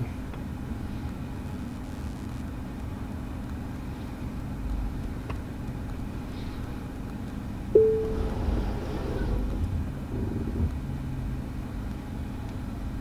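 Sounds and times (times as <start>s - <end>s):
car cabin rumble and hum: 7.8s - 13.0s.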